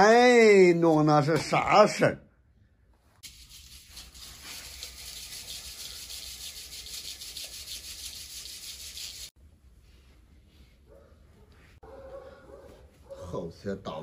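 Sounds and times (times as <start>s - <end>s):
soil sifting through wire mesh: 3.3s - 9.3s.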